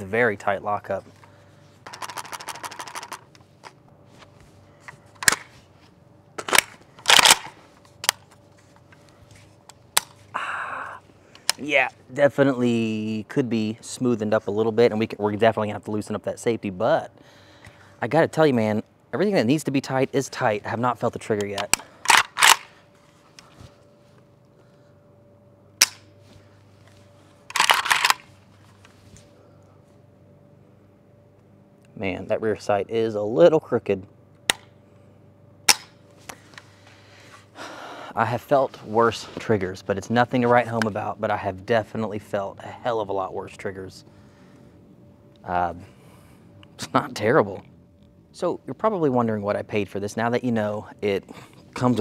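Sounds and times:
rifle metallic clicks and clacks: 0:06.4 - 0:08.3, 0:21.4 - 0:22.7, 0:27.5 - 0:28.3
rifle hammer snap: 0:25.8 - 0:26.1, 0:35.7 - 0:36.0.

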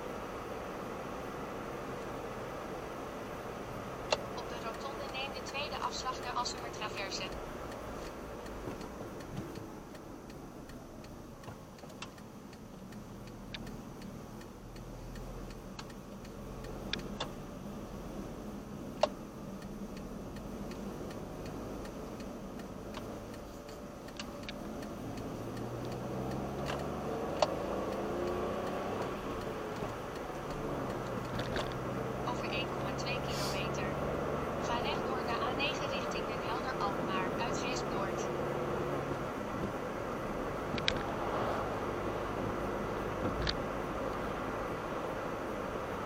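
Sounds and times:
car engine and tyre noise: 0:00.0 - 0:46.0
light ticks: 0:04.0 - 0:38.4, 0:39.1 - 0:41.2, 0:43.0 - 0:46.0
sharp clicks: 0:04.1 - 0:17.4, 0:18.9 - 0:31.9, 0:40.7 - 0:41.1.

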